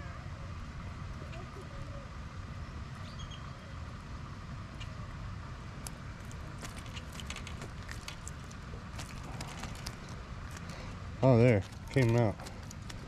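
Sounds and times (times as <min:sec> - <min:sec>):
steady low rumble: 0:00.0 - 0:13.0
light taps and splashes: 0:05.8 - 0:13.0
fish flopping in a net: 0:06.2 - 0:10.8.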